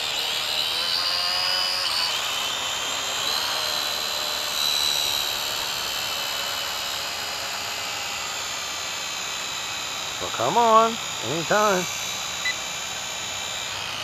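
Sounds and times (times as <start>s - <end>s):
drone propellers whining: 0.0s - 14.0s.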